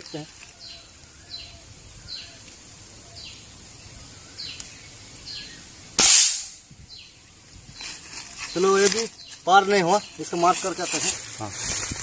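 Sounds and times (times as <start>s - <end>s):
bird chirping: 0.0s - 6.0s, 6.8s - 11.2s
air rifle shot: 6.0s - 6.6s.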